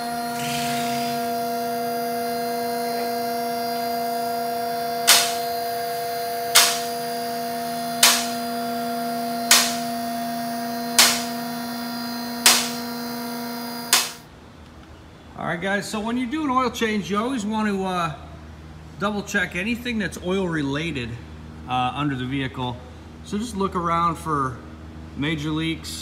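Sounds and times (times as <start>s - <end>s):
hydraulic pump running: 0.0s - 14.2s.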